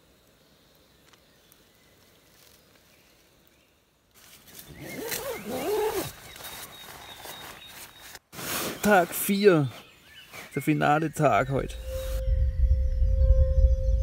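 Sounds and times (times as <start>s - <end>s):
fabric rustling: 4.2s - 9.2s.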